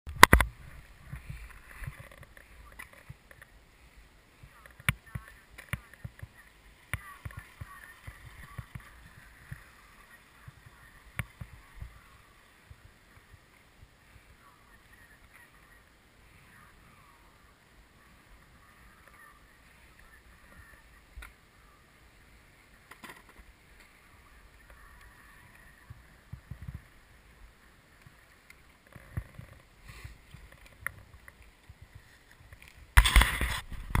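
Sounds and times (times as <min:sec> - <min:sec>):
skis sliding over snow: 0:00.3 - 0:34.0.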